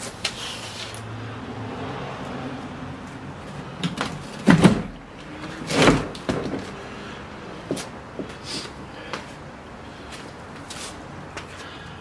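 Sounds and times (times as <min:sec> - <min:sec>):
sharp knocks and thuds: 0:03.8 - 0:05.0, 0:05.7 - 0:06.8.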